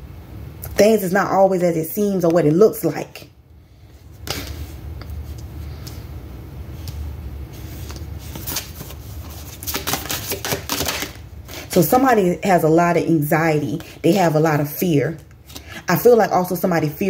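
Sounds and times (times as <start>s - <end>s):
cards shuffling: 7.6s - 11.2s.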